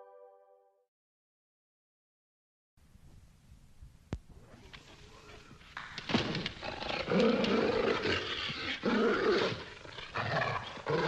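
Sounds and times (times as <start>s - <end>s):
dog snarling and growling: 6.6s - 11.0s.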